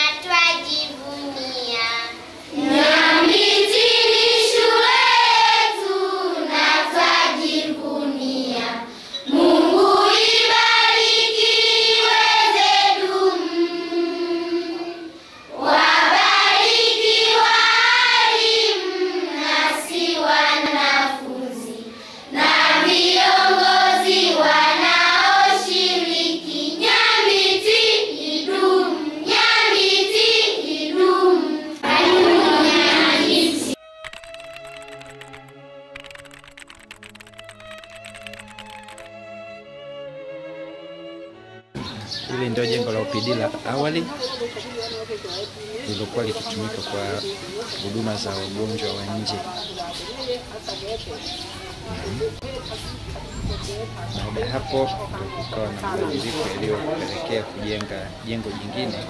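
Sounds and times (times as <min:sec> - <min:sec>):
children singing: 0:02.5 - 0:33.8.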